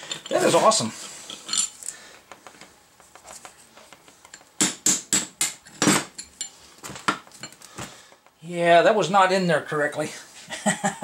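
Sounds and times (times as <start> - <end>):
clinks of steel parts handled: 1.3 - 1.9.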